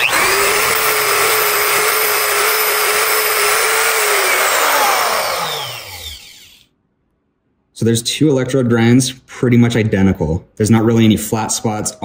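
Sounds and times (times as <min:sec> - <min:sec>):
grinder whining: 0:00.0 - 0:06.7.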